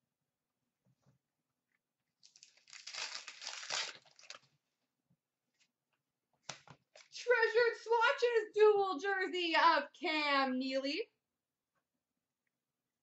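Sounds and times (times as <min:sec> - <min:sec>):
foil wrapper crinkling: 0:02.2 - 0:04.5.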